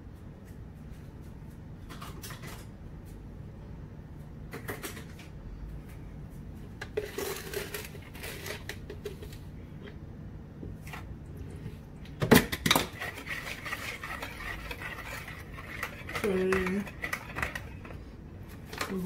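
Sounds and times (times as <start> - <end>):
whisk scraping ceramic bowl: 12.7 - 18.0
measuring cup scooping sugar: 12.9 - 18.0.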